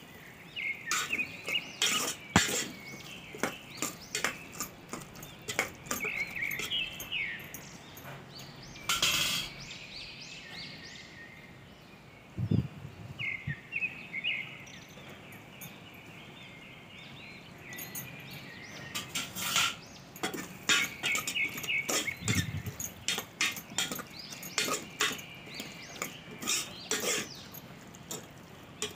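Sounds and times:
metal spoon scraping in pot: 0.9s - 7.2s, 19.0s - 28.9s.

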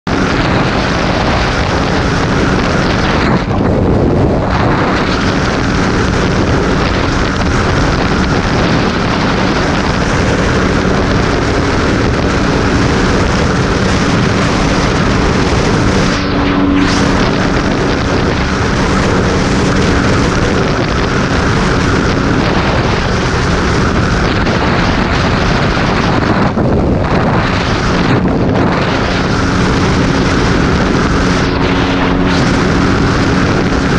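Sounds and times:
motorcycle engine cruising drone: 0.0s - 33.9s
wind rush on microphone: 0.0s - 33.9s.

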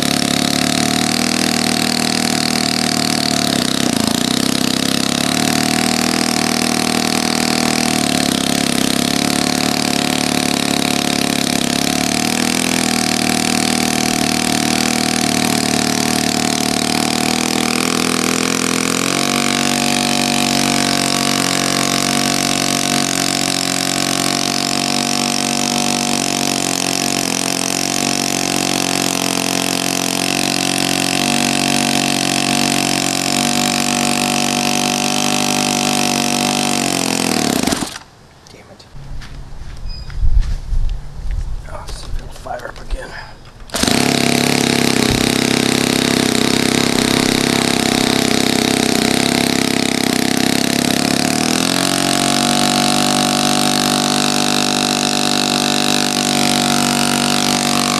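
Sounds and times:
model engine running with propeller: 0.0s - 38.0s, 43.6s - 57.9s.

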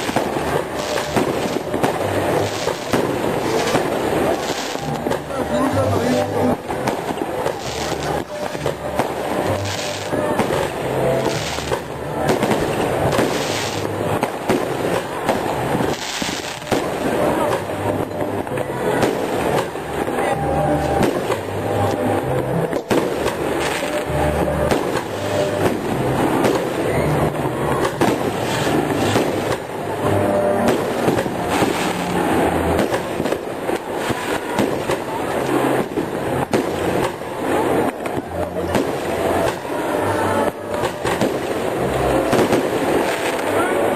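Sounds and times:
firework hisses: 0.0s - 5.4s, 6.5s - 17.7s, 30.7s - 38.0s
fireworks bangs and crackling: 0.0s - 43.9s.

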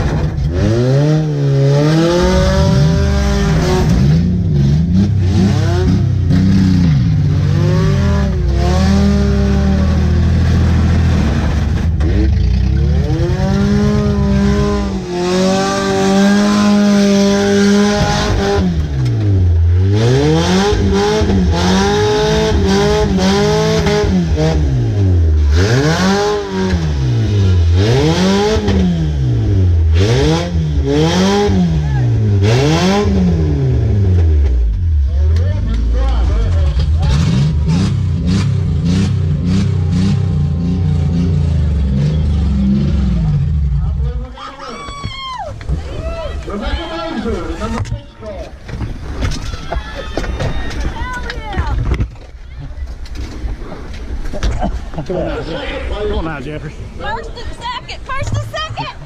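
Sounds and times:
car engine revving: 0.0s - 44.4s.

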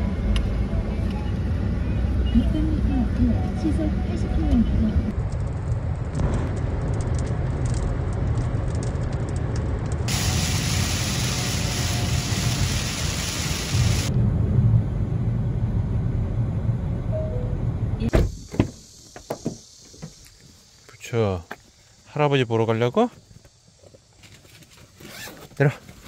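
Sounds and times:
loud rushing noise with rumble: 0.0s - 18.4s.

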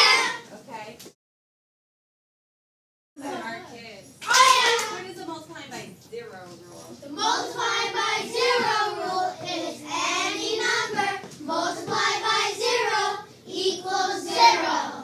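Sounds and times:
children singing in unison: 7.2s - 15.0s.

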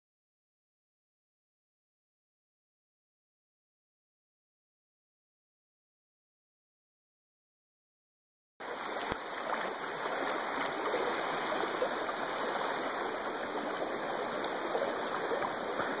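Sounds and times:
creek flowing water: 8.6s - 16.0s.

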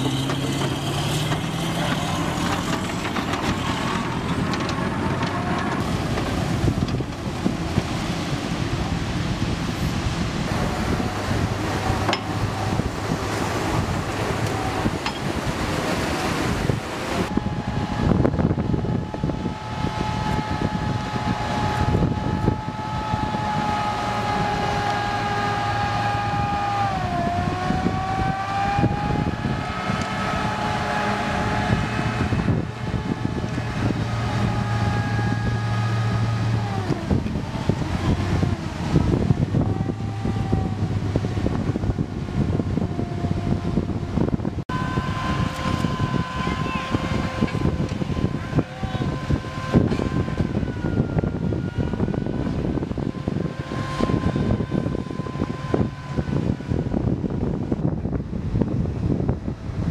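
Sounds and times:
diesel engines rumbling: 0.0s - 59.9s
high whine: 0.0s - 59.9s.

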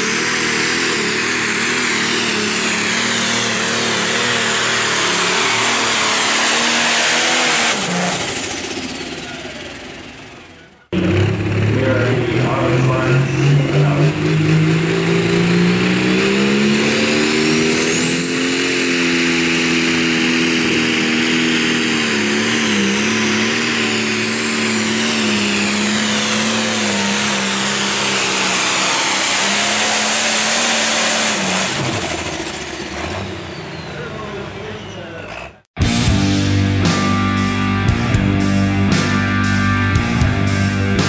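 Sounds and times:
diesel tractor at full throttle: 0.0s - 41.0s
high rising whistle: 15.3s - 19.2s.

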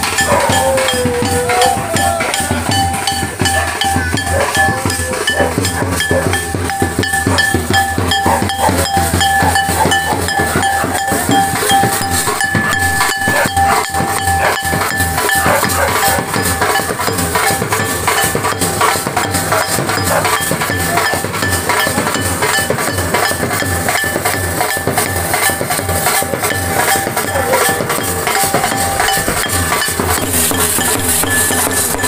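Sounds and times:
drum beats: 0.0s - 32.0s
metallic clinking strikes: 0.0s - 32.0s.

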